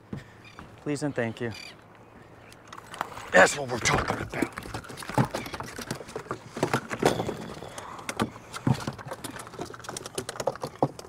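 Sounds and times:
fish flopping on deck: 3.8s - 11.0s.

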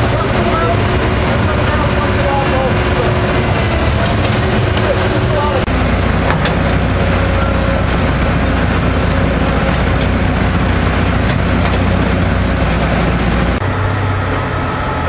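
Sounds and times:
excavator bucket digging: 0.0s - 13.6s
excavator diesel engine droning: 0.0s - 15.0s.

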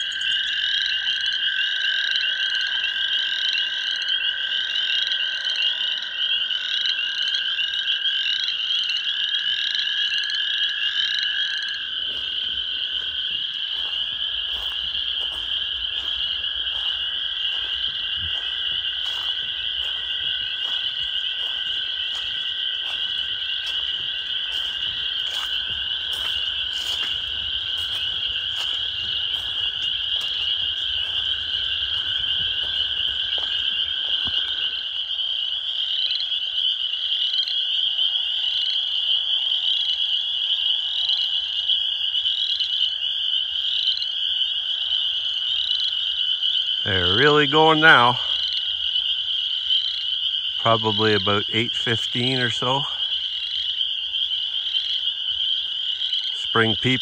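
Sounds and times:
chorus of spring peepers: 0.0s - 57.0s
toads trilling: 0.0s - 57.0s
footsteps on a dirt trail: 11.3s - 35.2s.

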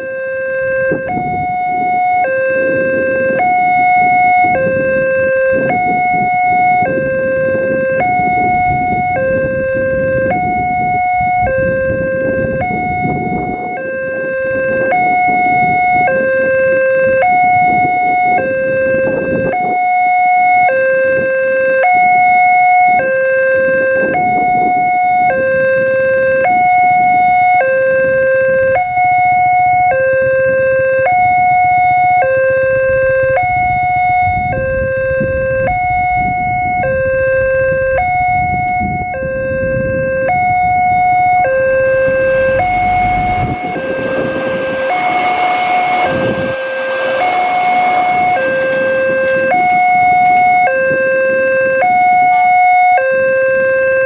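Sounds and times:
two-tone crossing alarm: 0.0s - 54.0s
approaching train rumble: 31.2s - 40.0s, 40.6s - 52.5s.

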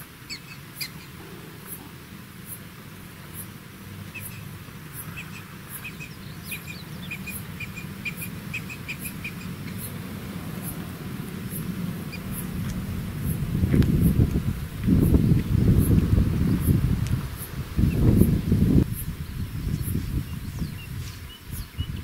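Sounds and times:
bird chirping: 0.0s - 1.8s, 4.1s - 10.8s, 11.5s - 16.8s, 17.4s - 22.0s
steady low rumble: 0.0s - 22.0s
faint high tick: 17.0s - 17.3s.

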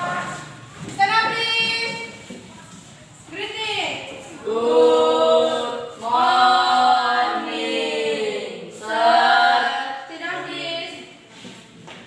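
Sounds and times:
group singing unaccompanied: 0.0s - 0.8s, 4.1s - 11.2s.

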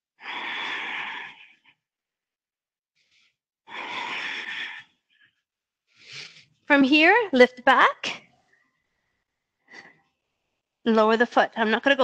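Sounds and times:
woman breathing heavily: 0.2s - 1.8s, 3.0s - 6.5s.

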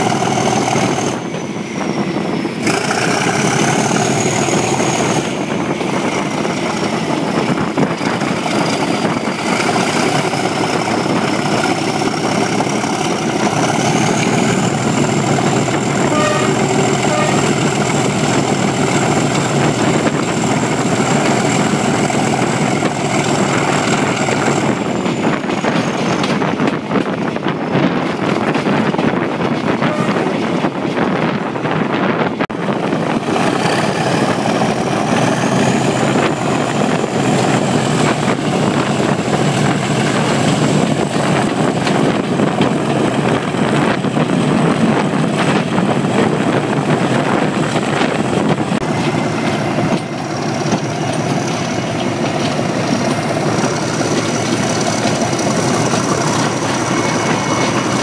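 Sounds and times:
diesel locomotive engine: 0.0s - 58.0s
train running noise: 0.0s - 58.0s
turbocharger whistle: 15.6s - 18.1s.

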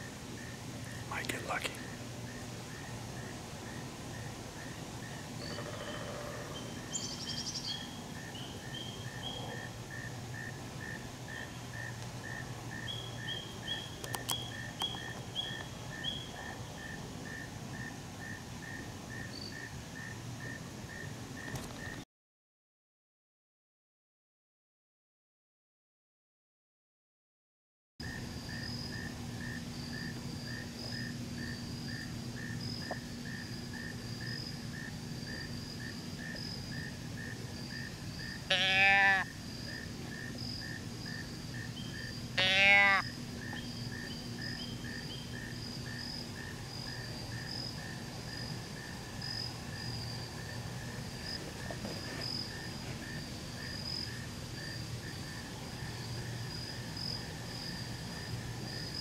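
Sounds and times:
insect chorus chirping: 0.4s - 22.0s, 28.0s - 59.0s
short loud bleats: 38.5s - 39.3s, 42.4s - 43.0s.

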